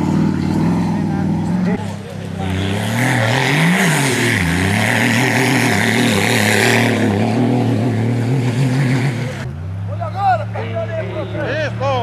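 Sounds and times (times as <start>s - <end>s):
car engine revving hard: 0.0s - 9.5s.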